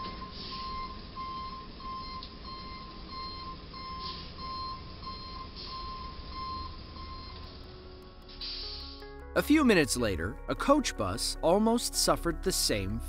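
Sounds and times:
truck reversing alarm beeping: 0.0 - 9.0.

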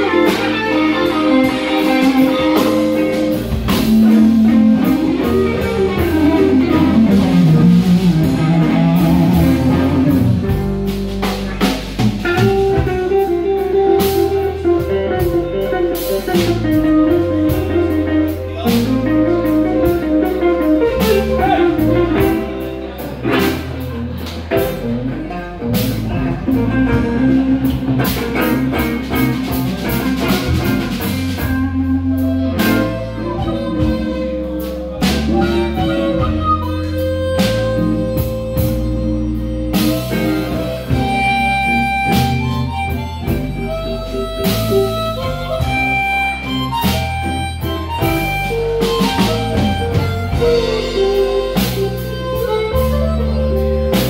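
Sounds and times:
blues band playing: 0.0 - 54.0
guitar: 0.0 - 54.0.

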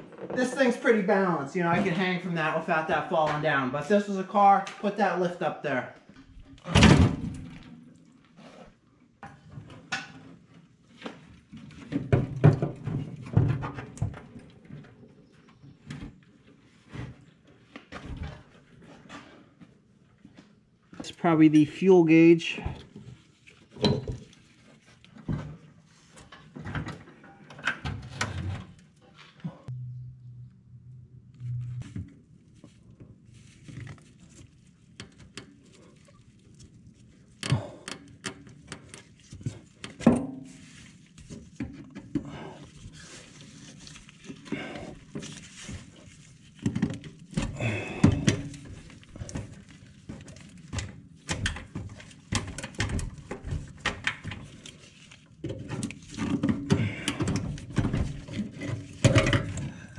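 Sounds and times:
low hum: 29.7 - 32.4.

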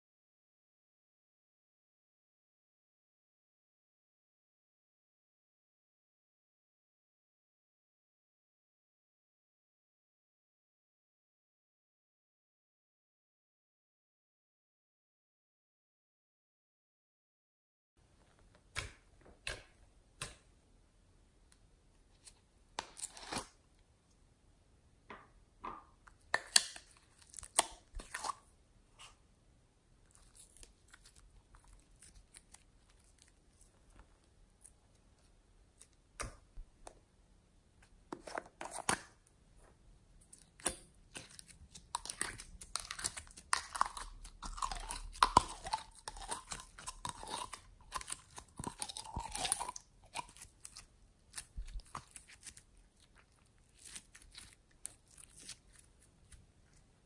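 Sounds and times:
slime squishing with sticky clicks: 25.9 - 28.4, 40.2 - 56.4.

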